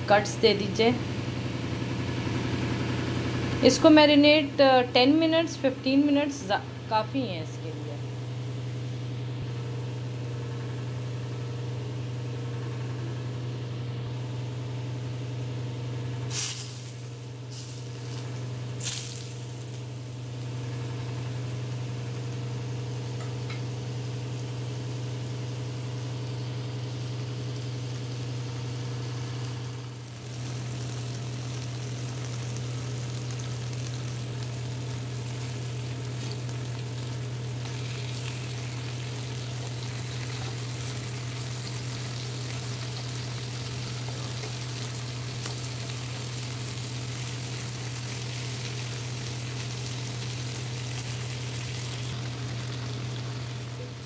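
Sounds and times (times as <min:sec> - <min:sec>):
fish sizzling in a pan: 0:16.3 - 0:54.0.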